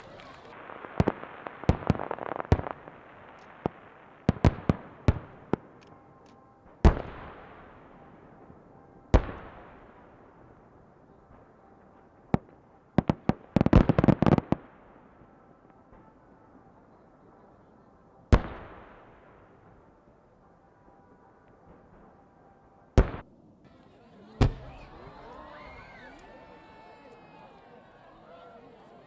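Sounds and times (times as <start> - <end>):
firework bangs: 0.0 - 5.9, 23.0 - 23.3
crackling firework pops: 0.0 - 7.2, 23.0 - 23.3
echoing firework booms: 0.6 - 5.8, 23.0 - 23.3.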